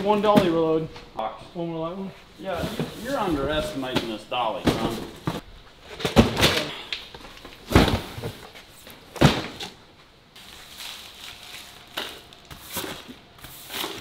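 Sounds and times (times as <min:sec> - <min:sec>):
boxes thumping onto hand truck: 0:02.5 - 0:09.8.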